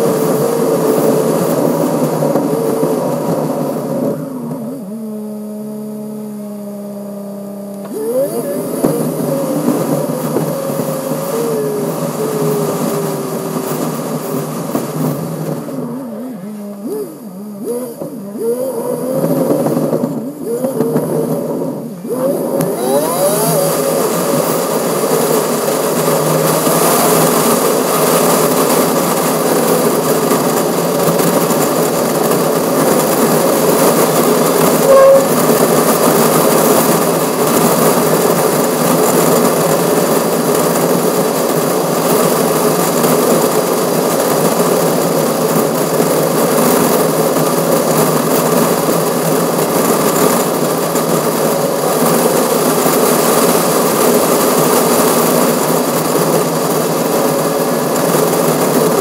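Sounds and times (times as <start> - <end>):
wind and road noise: 0.0 - 59.0
brief loud tone: 34.8 - 35.6.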